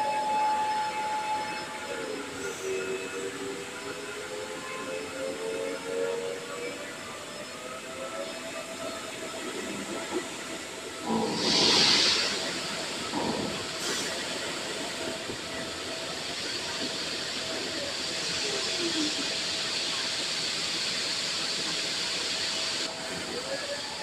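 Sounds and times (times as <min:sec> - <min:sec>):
rushing hiss: 0:11.0 - 0:22.9.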